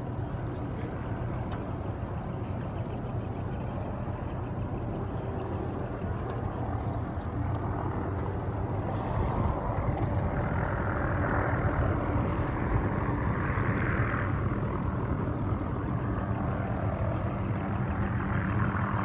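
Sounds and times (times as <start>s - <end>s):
low underwater hum: 0.0s - 19.0s
outboard motor running: 0.0s - 19.0s
wind noise: 4.8s - 19.0s.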